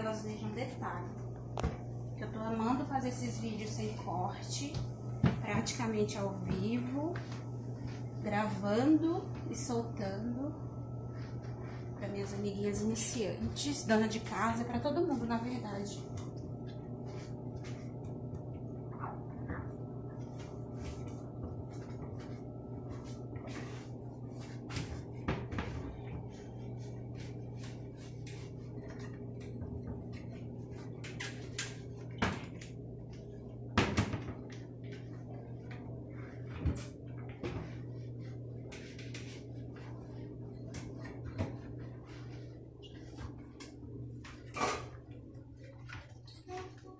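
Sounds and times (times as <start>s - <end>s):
steady low hum: 0.0s - 46.9s
cloth wiping surfaces: 16.7s - 18.0s, 19.0s - 32.1s, 37.4s - 43.6s.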